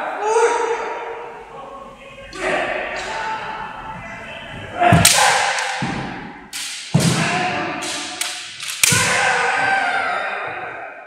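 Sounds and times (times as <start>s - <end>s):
bamboo swords cracking on armour: 5.0s - 9.5s.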